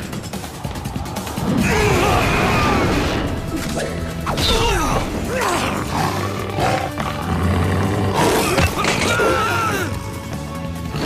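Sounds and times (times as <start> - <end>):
dramatic cartoon action music: 0.0 - 11.0
growling roaring voice: 4.7 - 9.8.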